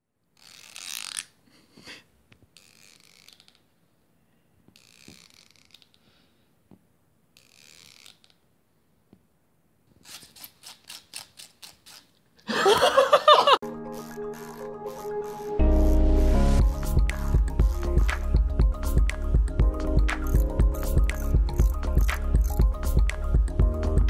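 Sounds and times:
pet brush raking through fur: 10.0s - 12.1s.

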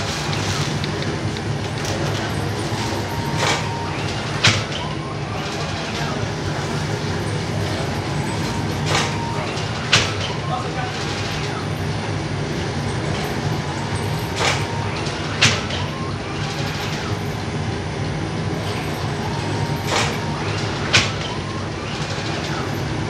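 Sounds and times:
machine humming: 0.0s - 23.0s.

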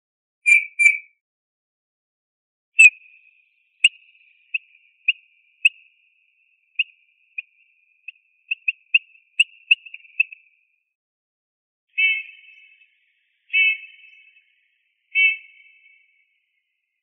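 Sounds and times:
bird high piping calls: 0.5s - 1.1s, 2.8s - 10.5s, 11.9s - 14.5s, 15.1s - 16.2s.

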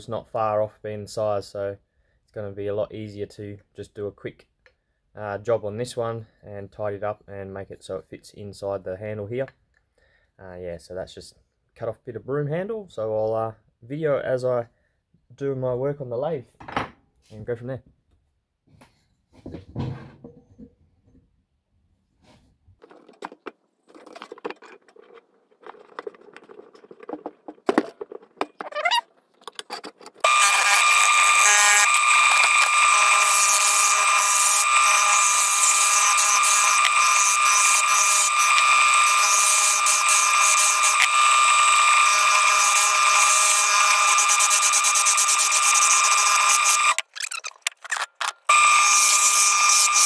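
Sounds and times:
lathe whining: 30.2s - 47.0s, 48.5s - 50.0s.

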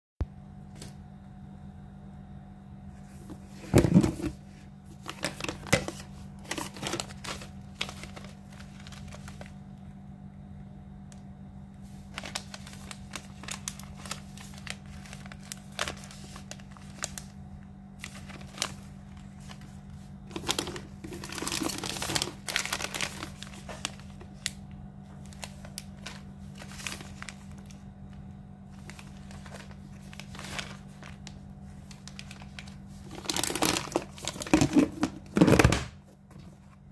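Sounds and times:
food sachets crinkling: 4.9s - 9.7s, 11.8s - 35.8s.

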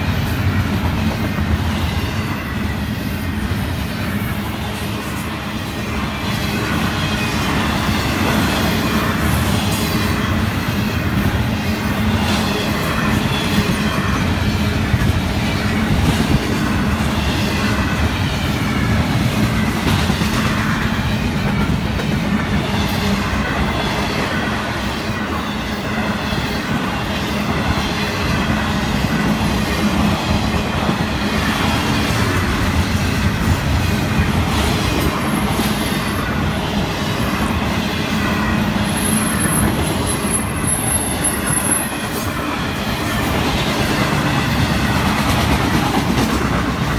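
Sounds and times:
freight train wheels rumbling: 0.0s - 46.9s
high wheel squeal: 38.2s - 43.2s.

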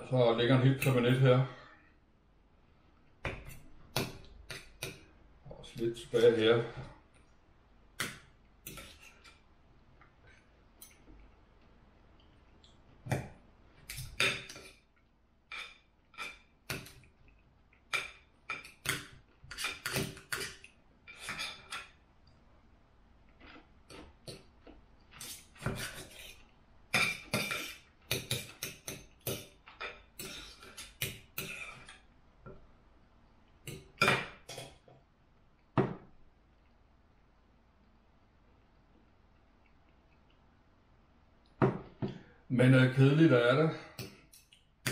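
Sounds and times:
cutlery clinking and scraping on plate: 15.5s - 17.0s, 18.0s - 22.0s, 25.2s - 32.0s.

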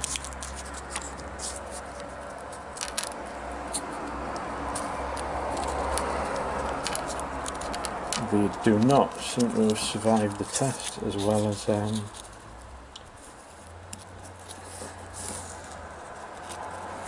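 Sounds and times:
foil wrapper crinkling: 5.0s - 12.3s.

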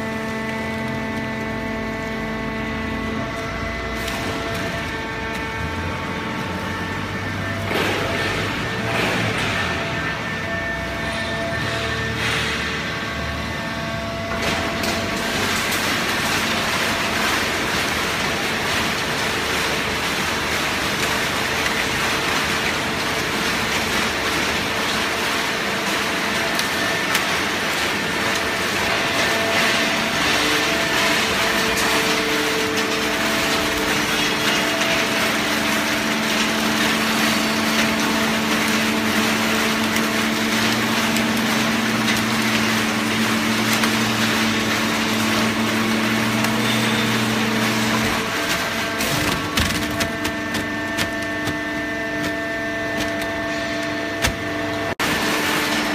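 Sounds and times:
baler machinery running: 0.0s - 55.9s
deeper hum: 0.0s - 55.9s
humming tone: 0.0s - 55.9s.

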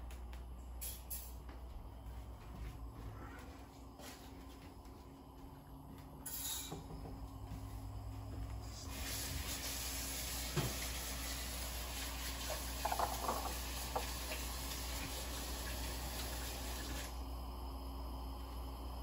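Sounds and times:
tap water running: 8.8s - 17.2s.

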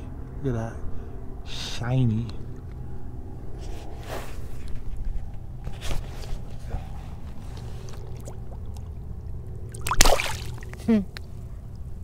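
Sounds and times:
shallow water sloshing: 6.8s - 10.8s
short water splashes: 7.6s - 10.8s.

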